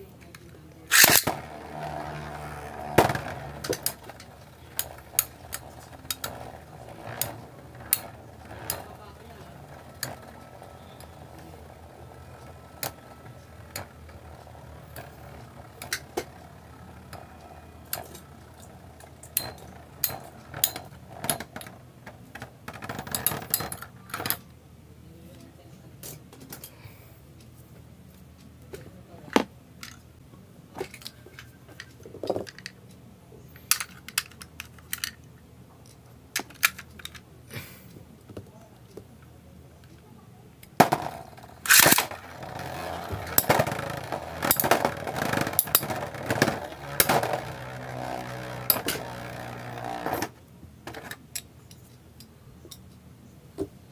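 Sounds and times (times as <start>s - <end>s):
rattling plastic clicks: 0.3s - 24.4s, 36.4s - 37.2s, 40.6s - 51.8s
spinning tops clacking: 0.9s - 21.2s, 40.8s - 50.3s.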